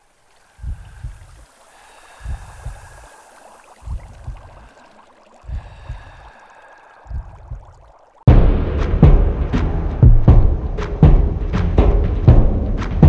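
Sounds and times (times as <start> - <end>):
water hissing and bubbling: 0.0 - 8.3
heartbeat sound effect: 0.6 - 1.4, 2.2 - 2.9, 3.8 - 4.6, 7.1 - 13.0.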